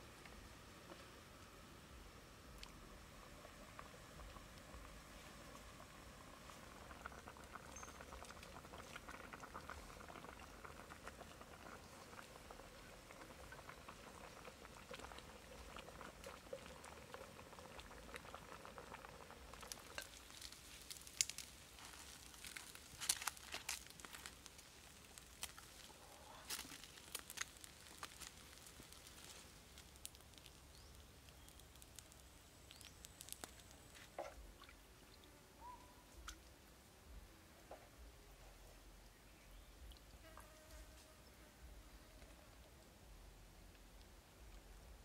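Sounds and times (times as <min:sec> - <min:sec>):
soup bubbling in a pan: 0:02.3 - 0:35.1.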